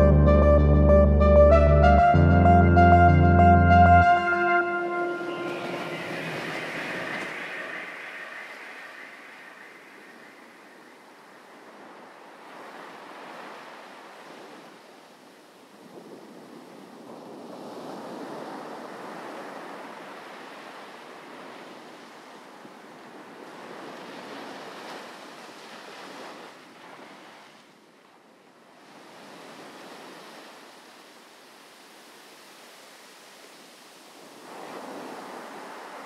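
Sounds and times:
sea waves washing: 3.9s - 27.7s, 28.8s - 36.0s.

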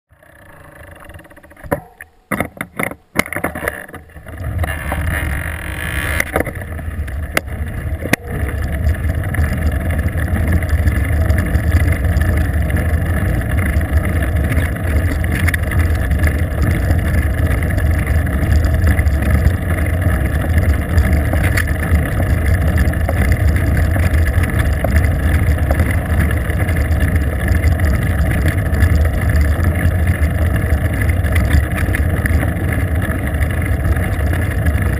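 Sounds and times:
road rumble: 0.1s - 34.9s
wind: 0.1s - 34.9s.

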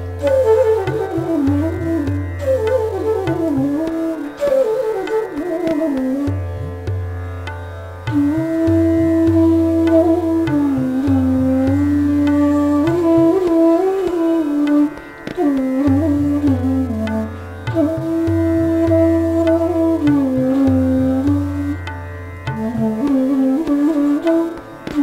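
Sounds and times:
bamboo flute melody: 0.0s - 25.0s
tabla drumming: 0.0s - 25.0s.

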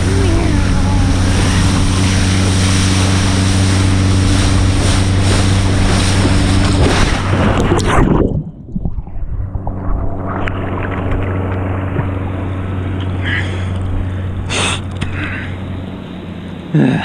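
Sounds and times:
muffled water sloshing: 0.0s - 17.0s
steady low hum: 0.0s - 17.0s
sharp splash: 1.1s - 12.3s.

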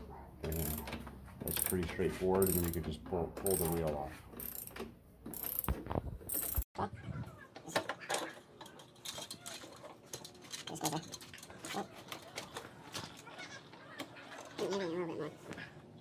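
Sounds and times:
ratchet wrench clicking: 0.5s - 0.9s, 1.5s - 1.8s, 2.4s - 2.8s, 3.5s - 6.6s.

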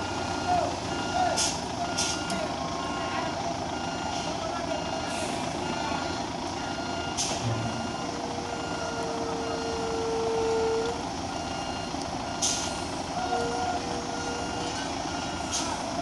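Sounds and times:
reversing alarm beeping: 0.0s - 15.7s
diesel engines running: 0.0s - 16.0s
air brake hisses: 7.2s - 7.4s, 12.4s - 12.9s.

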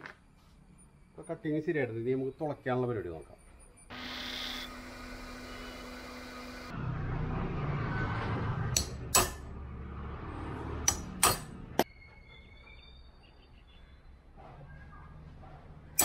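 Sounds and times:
hammer striking metal punch: 8.8s - 9.5s, 10.9s - 11.9s.

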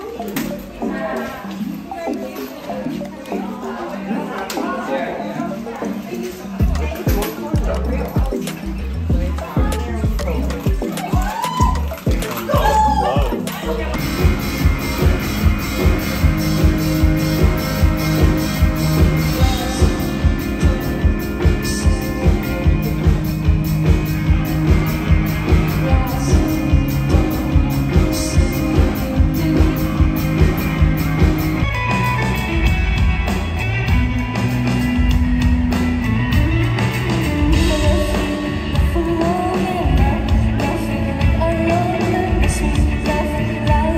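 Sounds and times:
drums: 5.6s - 43.9s
electric guitar: 6.6s - 43.9s
woman singing: 25.4s - 30.3s, 37.4s - 43.9s.

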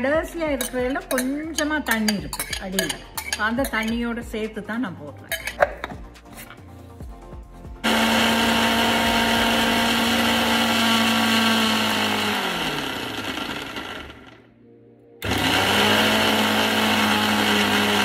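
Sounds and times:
mixer grinder motor running: 7.8s - 14.4s, 15.2s - 18.0s.

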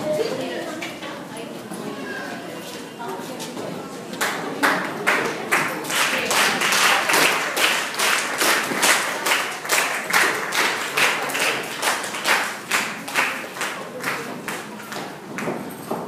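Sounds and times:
people clapping in unison: 4.2s - 16.0s.

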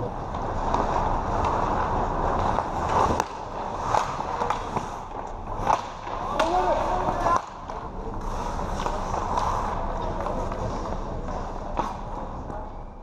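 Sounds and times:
hockey sticks and puck clacking: 0.1s - 12.9s
skate blades scraping ice: 0.3s - 12.6s.

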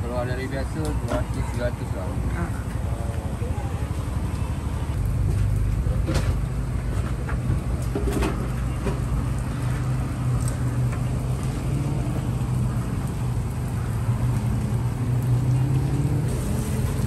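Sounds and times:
dough sizzling in hot oil: 4.6s - 17.0s.

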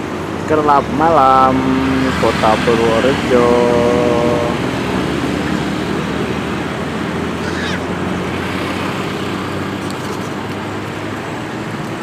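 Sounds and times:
motorcycle engine drone: 0.0s - 12.0s
wind and road noise: 0.0s - 12.0s.

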